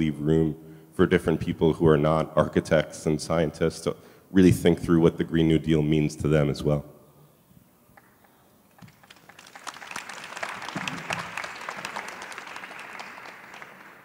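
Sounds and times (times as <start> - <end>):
audience applauding: 8.7 - 14.0.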